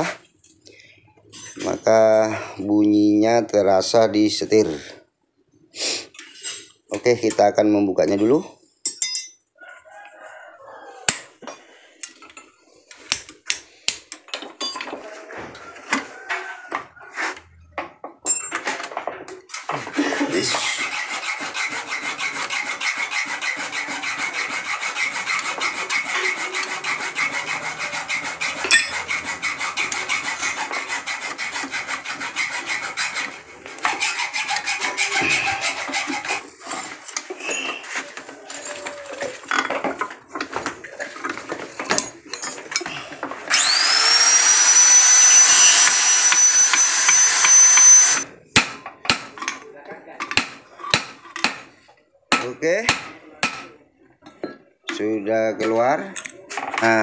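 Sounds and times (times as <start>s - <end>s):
rapid rasping scrape: 19.9s - 38.2s, 43.6s - 48.3s.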